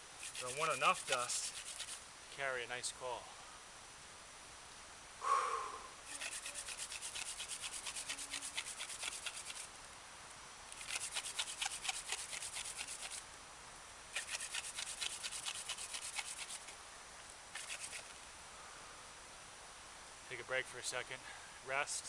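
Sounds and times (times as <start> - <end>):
wooden hand drill rasping: 0.2 - 2.0, 6.1 - 9.7, 10.7 - 13.2, 14.2 - 16.7, 17.6 - 18.2.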